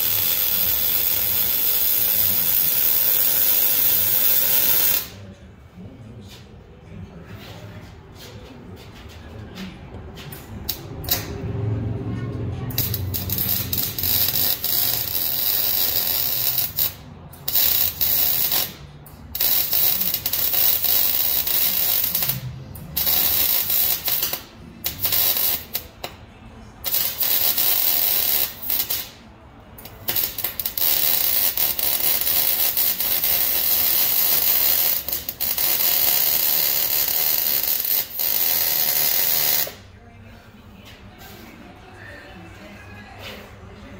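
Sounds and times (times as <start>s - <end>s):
arc welding: 0.0s - 5.2s, 10.7s - 11.4s, 12.7s - 26.2s, 26.8s - 29.2s, 29.8s - 39.8s.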